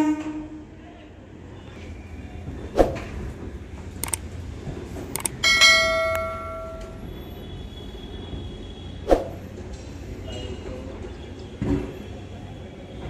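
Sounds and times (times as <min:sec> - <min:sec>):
bell-like metallic ring: 0:05.4 - 0:07.2.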